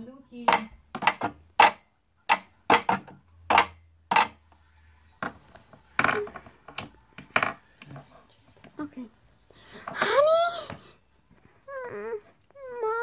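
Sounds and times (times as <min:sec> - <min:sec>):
taps on wooden shelf: 0:00.5 - 0:04.4.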